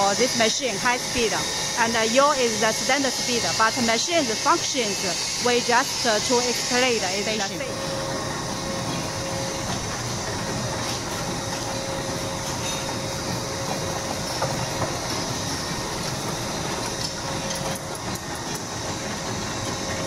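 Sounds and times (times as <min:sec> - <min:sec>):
machine mechanical clatter: 0:08.2 - 0:20.0.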